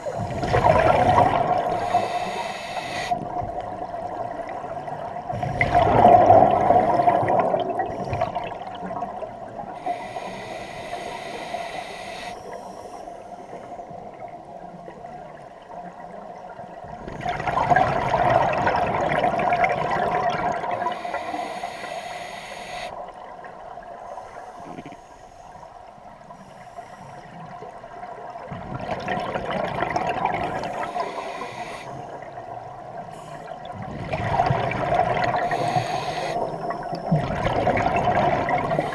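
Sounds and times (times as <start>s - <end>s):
bubbling underwater exhalations: 0.0s - 2.0s, 5.3s - 9.1s
hissing regulator inhalation: 0.0s - 3.2s, 9.8s - 13.2s, 20.8s - 23.0s, 30.6s - 32.1s, 35.4s - 36.6s.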